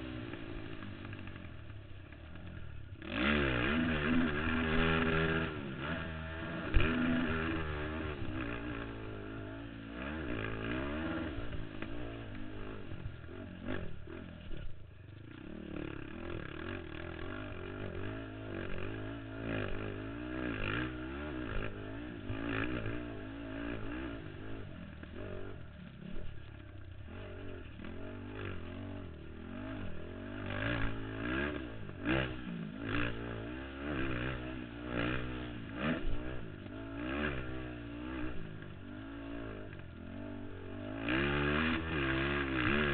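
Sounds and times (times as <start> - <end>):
quad engine revving: 3.0 - 14.6, 15.4 - 26.4, 27.0 - 42.9.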